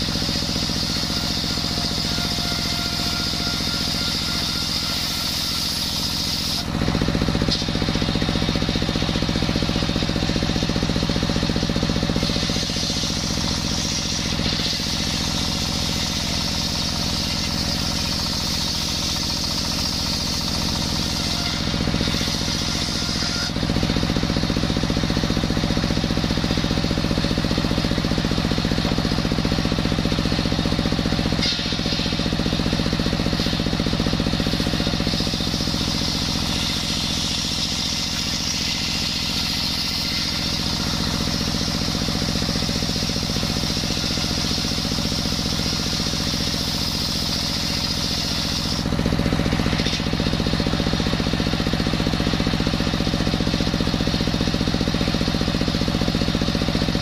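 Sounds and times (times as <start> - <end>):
circular saw blade cutting wood: 0.0 - 57.0
diesel engine running under load: 0.0 - 57.0.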